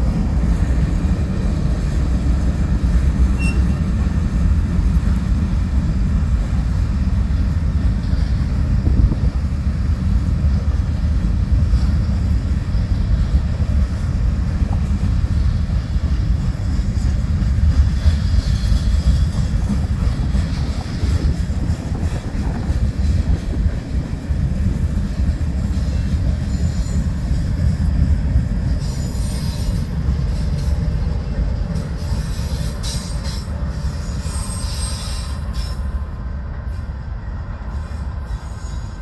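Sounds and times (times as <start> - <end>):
train wheels rumbling on rails: 0.0 - 39.0
high wheel squeal: 3.4 - 3.9, 32.0 - 36.0, 37.6 - 39.0.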